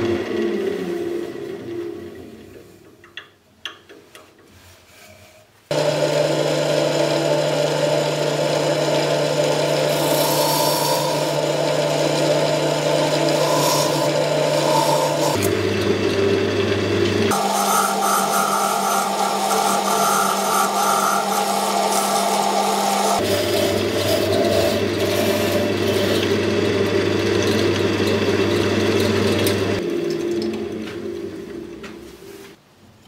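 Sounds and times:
wood lathe humming: 0.0s - 2.5s, 5.7s - 32.0s
tool scraping spinning wood: 4.5s - 32.5s.

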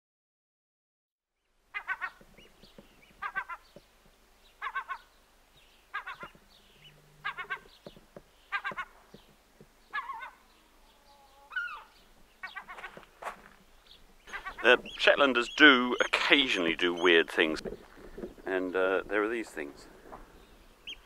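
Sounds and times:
seabird pulsed call: 14.2s - 17.2s.

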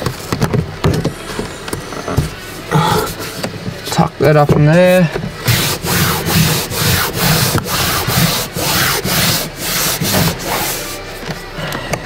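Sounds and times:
hand rubbing foam sheet: 5.4s - 11.6s.

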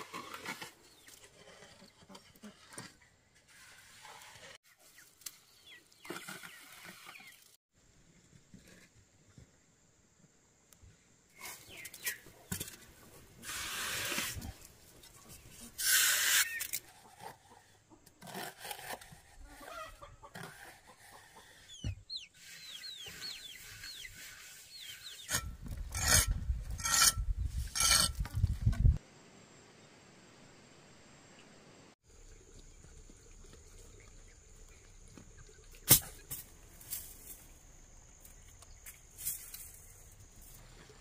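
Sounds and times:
trowel scraping wet mortar: 18.2s - 21.7s, 22.4s - 28.2s.

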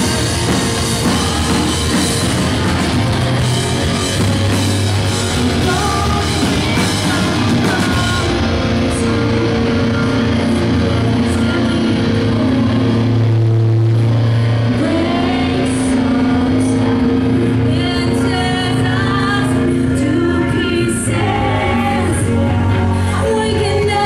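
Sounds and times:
live rock band playing: 0.0s - 24.0s
woman singing: 5.4s - 12.9s, 14.7s - 24.0s.

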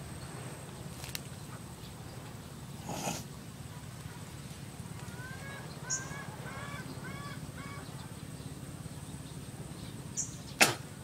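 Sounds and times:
bird calling: 5.0s - 10.8s.

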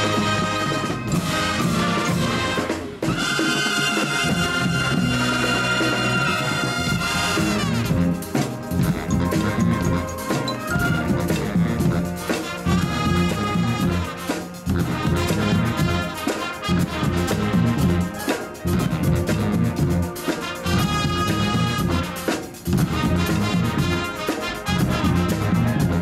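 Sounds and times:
brass and woodwinds: 0.0s - 26.0s
drums: 0.0s - 26.0s
marimba: 8.2s - 16.2s.

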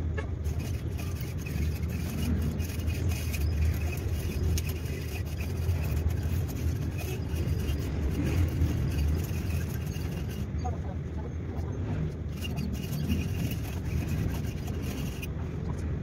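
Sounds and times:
fishing reel ticking and scraping: 0.4s - 10.6s, 12.2s - 15.3s.

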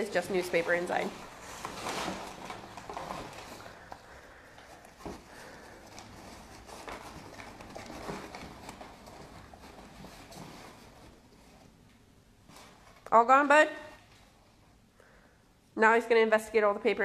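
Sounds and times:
paper rustling and crinkling: 0.0s - 11.8s.

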